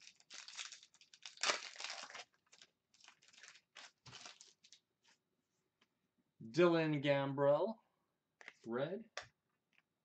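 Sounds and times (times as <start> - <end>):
foil wrapper crinkling and tearing: 0.0 - 4.8.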